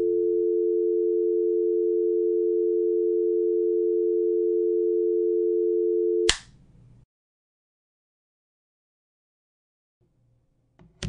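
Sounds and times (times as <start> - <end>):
telephone dial tone: 0.0 - 6.3.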